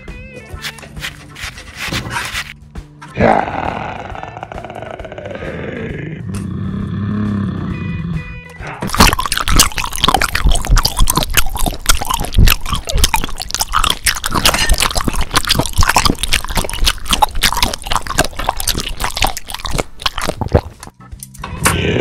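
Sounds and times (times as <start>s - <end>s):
steak being bitten and chewed: 0.6s - 2.6s, 8.8s - 21.0s.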